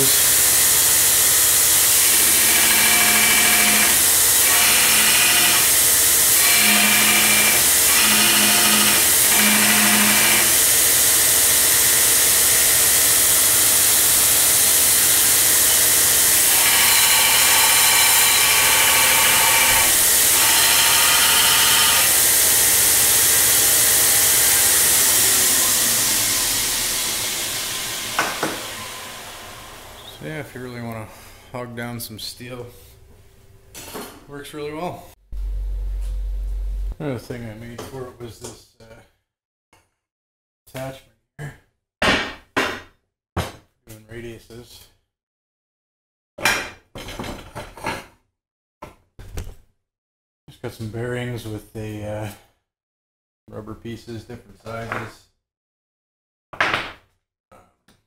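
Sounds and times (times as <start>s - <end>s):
belt grinder whirring: 0.0s - 30.2s.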